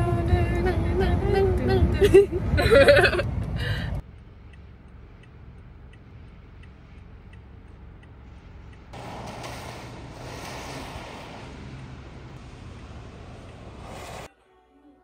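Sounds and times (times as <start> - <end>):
low cabin rumble: 0.0 - 14.3
car turn signal ticking: 3.4 - 9.0
loud rushing noise: 9.0 - 14.3.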